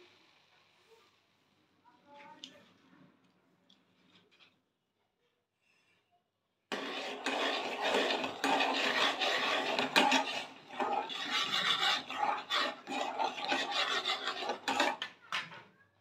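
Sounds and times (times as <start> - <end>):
spoon scraping steel pot: 6.7 - 15.2.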